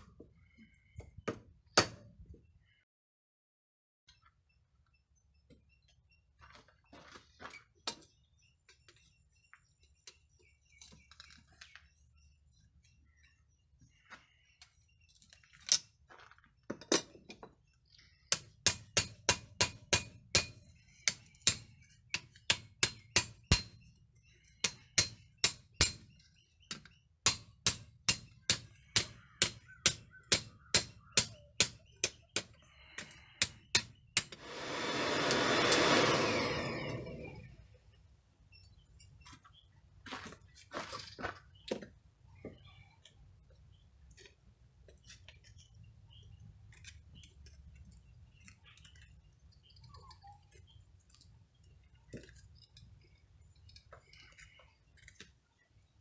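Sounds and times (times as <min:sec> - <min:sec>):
hammer striking hot steel on anvil: 0:18.3 - 0:23.8, 0:24.6 - 0:26.0, 0:27.2 - 0:32.5
loud hiss: 0:34.3 - 0:36.7.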